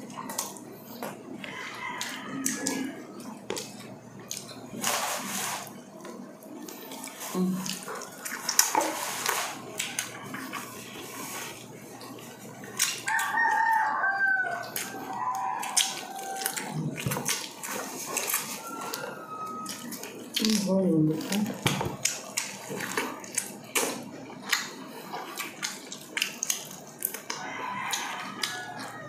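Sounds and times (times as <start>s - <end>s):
chewing and lip smacking: 0.0s - 4.8s, 5.9s - 29.0s
rooster crowing: 1.4s - 3.0s, 13.0s - 16.8s, 18.2s - 20.2s, 27.3s - 29.0s.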